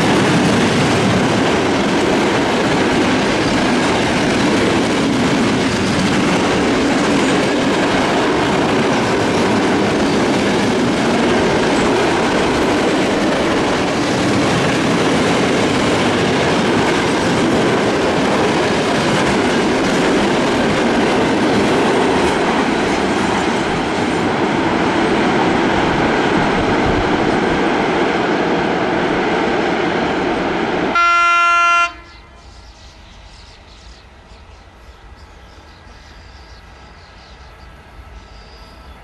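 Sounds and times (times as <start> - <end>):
freight train rumbling past: 0.0 - 39.0
train horn blast: 30.9 - 32.6.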